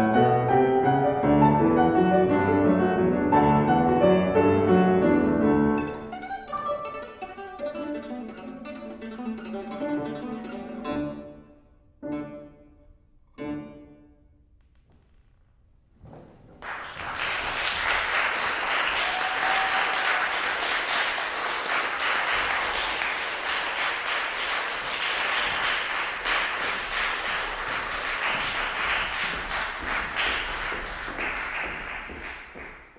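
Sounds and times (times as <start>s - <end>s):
audience clapping: 16.6s - 32.9s.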